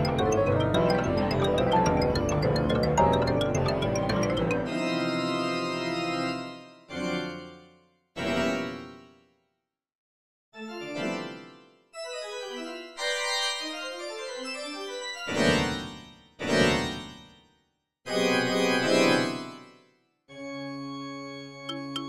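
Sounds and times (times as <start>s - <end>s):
atonal organ chords: 0.0s - 7.7s, 18.1s - 19.6s, 20.3s - 22.0s.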